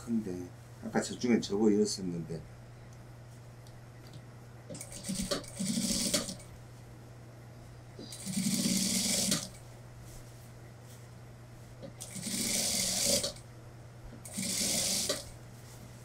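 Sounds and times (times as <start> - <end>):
sewing machine stitching: 4.7 - 6.4, 8.0 - 9.6, 12.0 - 13.4, 14.2 - 15.3.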